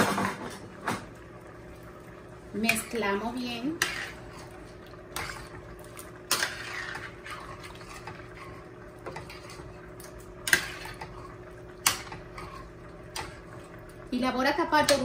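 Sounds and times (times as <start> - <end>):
spoon stirring in juice: 2.6 - 14.0.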